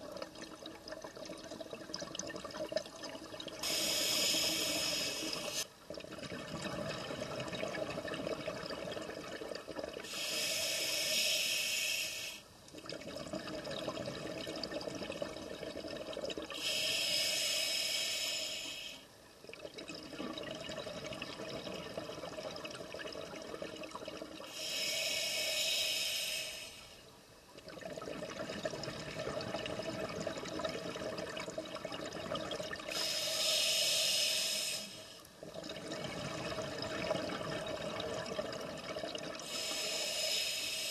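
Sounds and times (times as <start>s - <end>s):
diver breathing through regulator: 3.6s - 5.6s, 10.1s - 12.4s, 16.6s - 19.0s, 24.5s - 27.0s, 32.9s - 35.1s, 39.4s - 40.9s.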